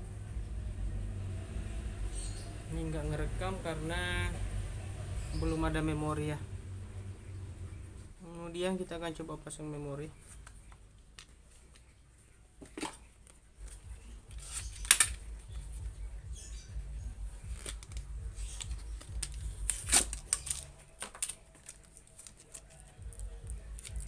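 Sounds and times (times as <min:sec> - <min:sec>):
plastic packaging clicking and crackling: 0:12.6 - 0:15.6, 0:17.5 - 0:24.0.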